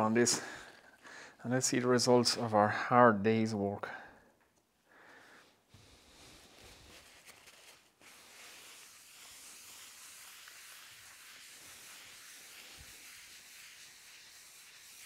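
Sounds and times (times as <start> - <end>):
paper towel rubbing wooden board: 6.2 - 15.0.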